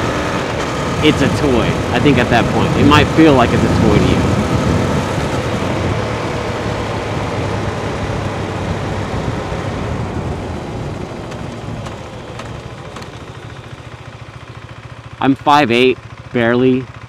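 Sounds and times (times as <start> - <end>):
wind noise: 0.0 - 13.3
motorcycle engine running: 0.0 - 17.0.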